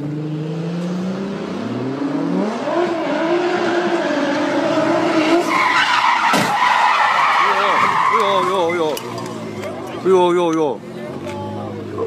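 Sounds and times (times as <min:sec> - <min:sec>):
car engine revving: 0:00.0 - 0:12.0
tyres squealing: 0:05.2 - 0:10.3.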